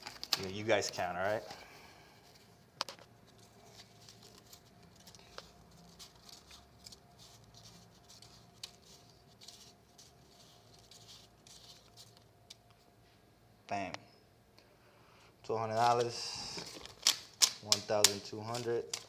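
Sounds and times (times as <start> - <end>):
banknotes flicked by hand: 16.9 - 19.0.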